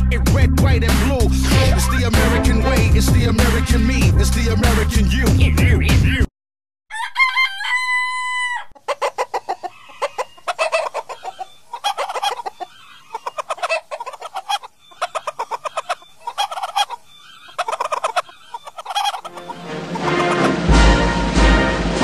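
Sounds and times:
chickens clucking: 0:00.9 - 0:03.7, 0:06.9 - 0:21.1
rooster crowing: 0:06.9 - 0:08.8, 0:09.4 - 0:20.6.

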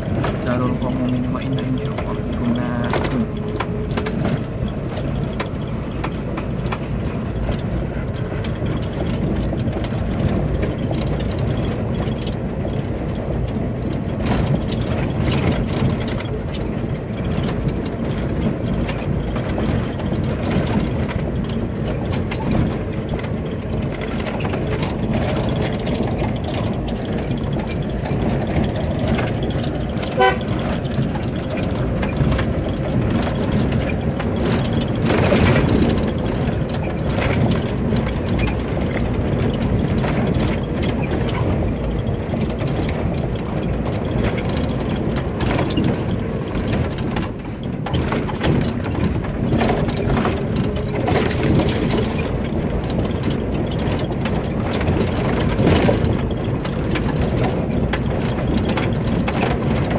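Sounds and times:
car engine driving: 0:00.0 - 0:59.9
road noise: 0:00.0 - 0:59.9
car horn toot: 0:30.2 - 0:30.6.

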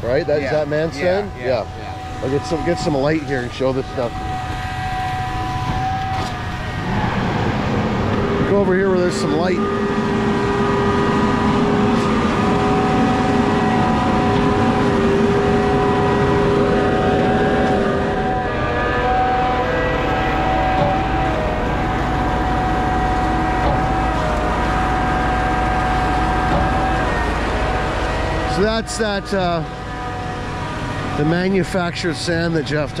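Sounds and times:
diesel truck engine running: 0:00.0 - 0:33.0.

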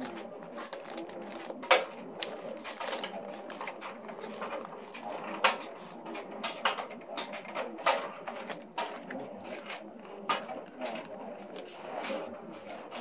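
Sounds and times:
plastic bag crinkling: 0:00.0 - 0:05.5
plastic tubing handled: 0:00.0 - 0:13.0.

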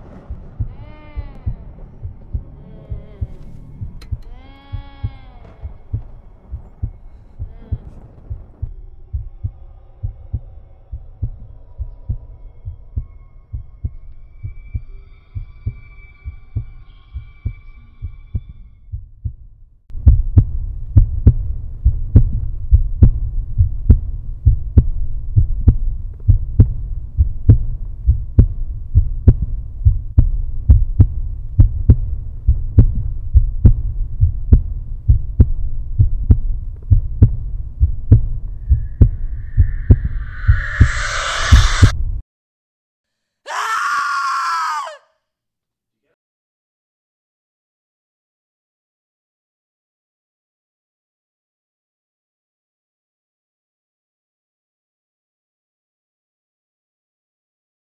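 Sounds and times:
heartbeat thumps: 0:00.0 - 0:42.0
faint held high tones: 0:38.6 - 0:41.9.

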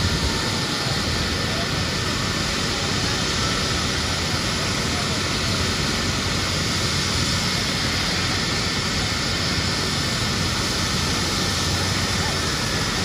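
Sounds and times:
helicopter engine and rotor noise: 0:00.0 - 0:13.0.

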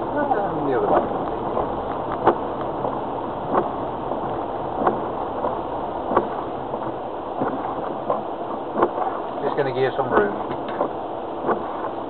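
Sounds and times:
diesel engine: 0:00.0 - 0:12.0
rain on car body: 0:00.0 - 0:12.0
tyres rumbling on rough track: 0:00.0 - 0:12.0
windscreen wiper knocking: 0:00.0 - 0:12.0.

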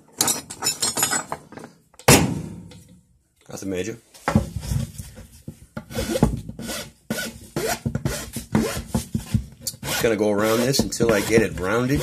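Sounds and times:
file rasping on wood: 0:05.9 - 0:12.0.

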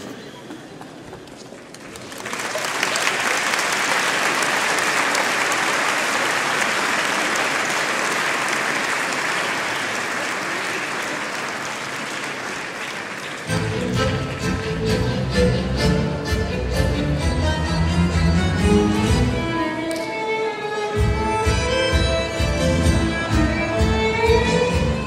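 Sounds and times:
audience applause: 0:00.0 - 0:14.6.

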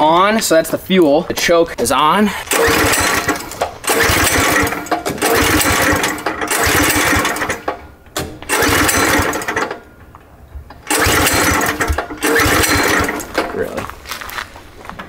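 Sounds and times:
recoil rope pulled: 0:02.4 - 0:07.8, 0:08.4 - 0:09.8, 0:10.9 - 0:15.0
small engine running roughly: 0:02.5 - 0:07.7, 0:08.5 - 0:09.7, 0:10.9 - 0:13.5.

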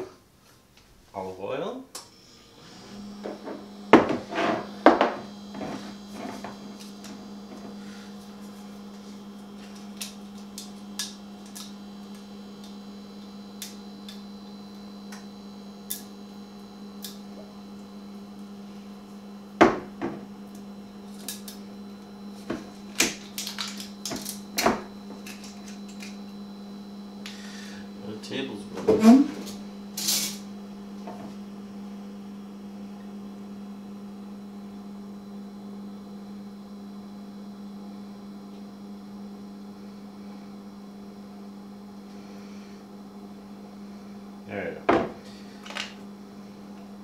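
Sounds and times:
steady low hum: 0:00.0 - 0:47.0
kitchen utensils handled: 0:29.0 - 0:30.4.

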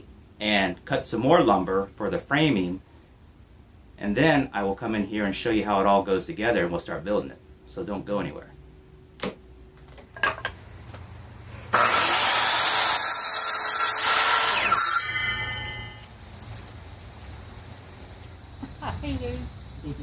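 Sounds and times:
miter saw cutting wood: 0:11.6 - 0:16.0
saw blade spinning down: 0:11.7 - 0:16.2.

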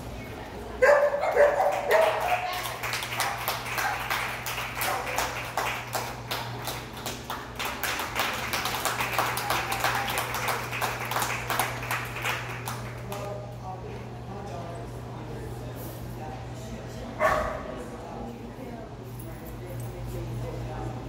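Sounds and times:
people clapping: 0:01.2 - 0:13.6.

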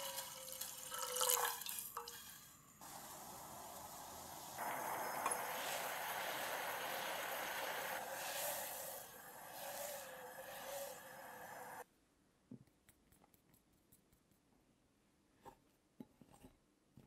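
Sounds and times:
sauce bubbling in a saucepan: 0:00.0 - 0:11.8.

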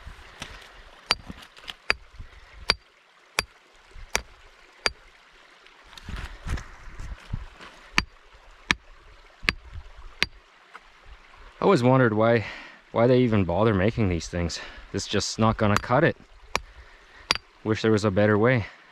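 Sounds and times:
rock pick striking rock: 0:01.1 - 0:02.0, 0:15.5 - 0:16.7, 0:17.3 - 0:17.5.

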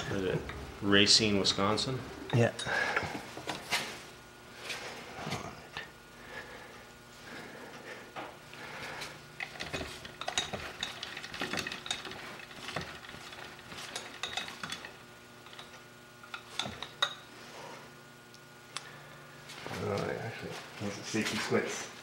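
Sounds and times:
faint steady hum: 0:00.0 - 0:22.0
metal tools clinking and scraping: 0:02.2 - 0:03.7, 0:09.4 - 0:17.2.

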